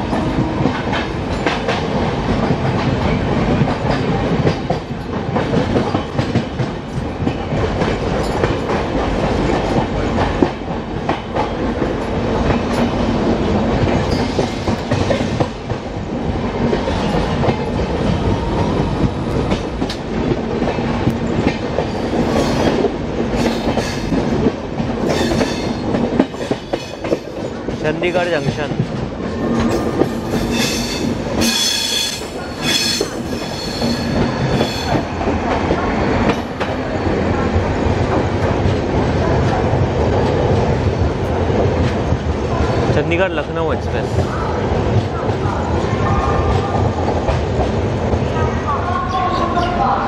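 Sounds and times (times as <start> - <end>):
train wheels clacking over rail joints: 0.0 - 17.9, 19.0 - 42.9
rumble and hiss of moving train: 0.0 - 50.0
train passing alongside: 0.0 - 50.0.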